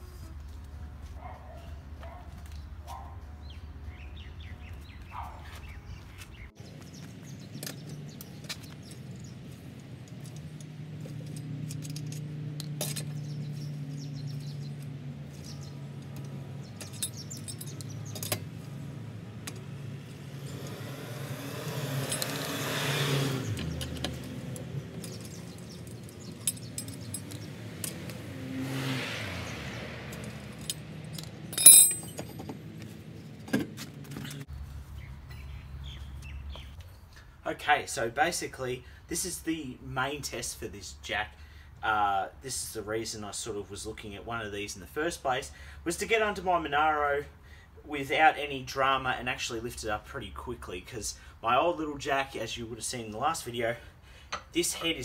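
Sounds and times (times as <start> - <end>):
loud ringing metal clink: 31.5 - 32.3.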